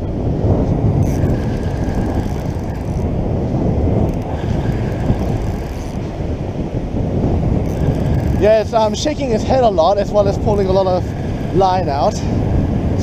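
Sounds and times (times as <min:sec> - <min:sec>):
wind on microphone: 0:00.0 - 0:13.0
fishing reel whirring: 0:01.0 - 0:03.2, 0:04.0 - 0:06.2, 0:07.6 - 0:09.4
surf breaking: 0:07.1 - 0:12.8.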